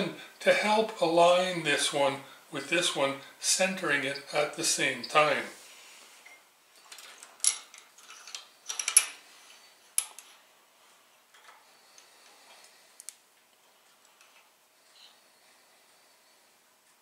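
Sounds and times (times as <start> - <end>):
metal parts clicking and tapping: 6.8 - 9.2, 10.0 - 10.4.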